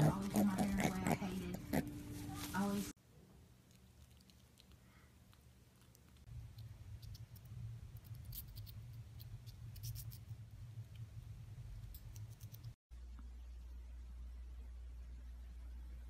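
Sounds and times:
low steady hum: 0.0s - 16.0s
chipmunk nibbling food: 3.4s - 11.1s.

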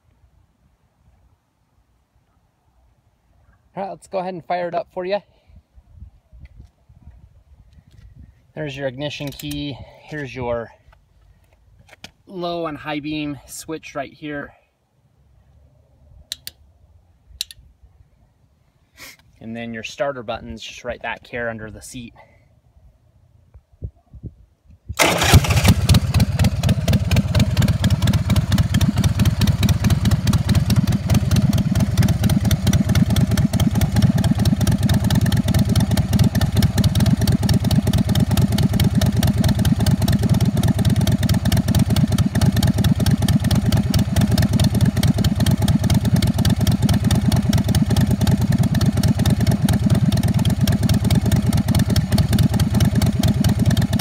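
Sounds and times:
electric starter: 25.0s - 26.5s
motorcycle engine idling: 25.0s - 54.0s.

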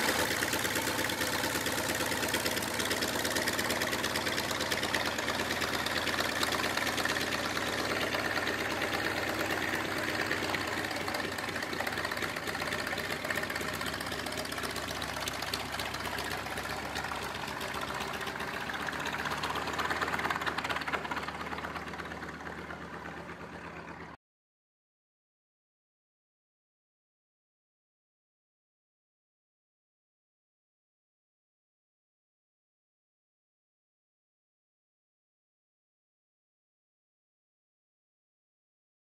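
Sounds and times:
propeller noise: 0.0s - 24.2s
radial aircraft engine pulsing: 0.0s - 24.2s.

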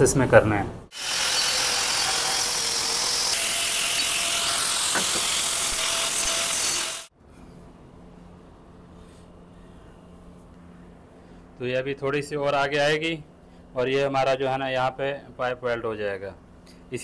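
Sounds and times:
angle grinder cutting steel pipe: 0.9s - 7.1s
steady low hum: 7.2s - 17.0s.

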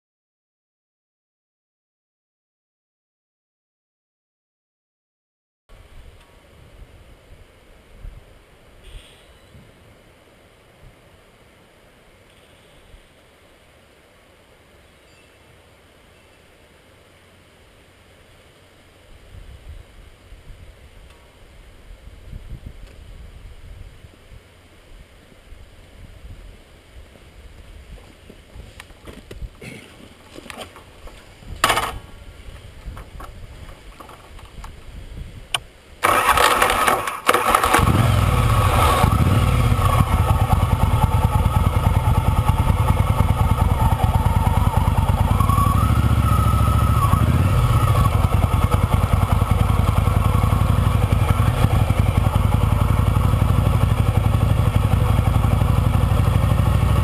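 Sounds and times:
motorcycle engine running: 36.0s - 57.0s.

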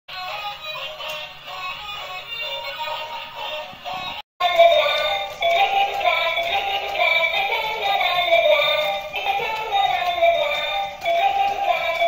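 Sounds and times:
tinny electronic toy melody: 4.4s - 12.0s.

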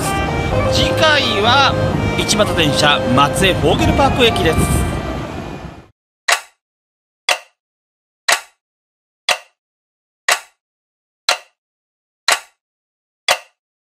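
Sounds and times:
sharp tick: 6.3s - 6.6s, 7.3s - 7.6s, 8.3s - 8.6s, 9.3s - 9.6s, 10.3s - 10.6s, 11.3s - 11.6s, 12.3s - 12.6s, 13.3s - 13.6s.

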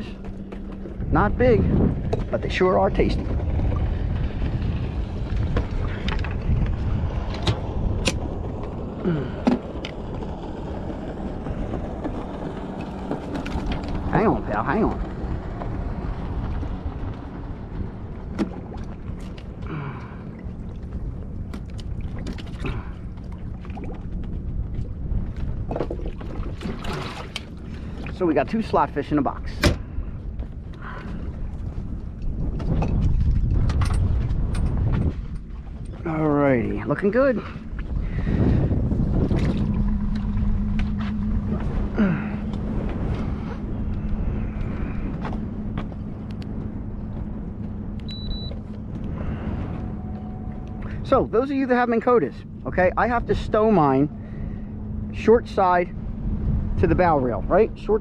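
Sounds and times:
faint low hum: 0.0s - 58.0s
water noise around boat: 0.0s - 58.0s
wind: 0.0s - 58.0s
high electronic beep: 48.1s - 48.6s.

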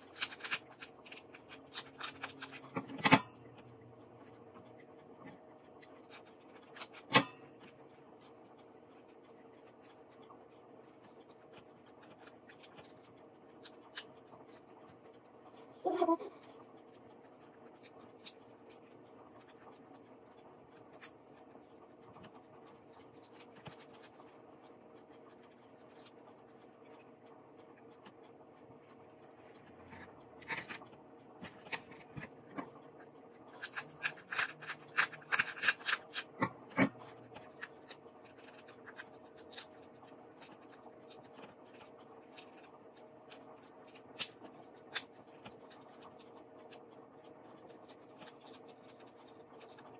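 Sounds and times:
lobster shell cracking: 0.0s - 3.2s, 33.5s - 41.2s
faint steady hum: 0.0s - 49.9s.

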